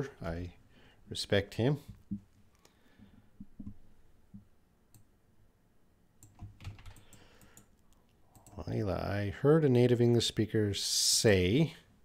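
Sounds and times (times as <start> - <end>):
keyboard and mouse clicks: 6.2 - 8.7.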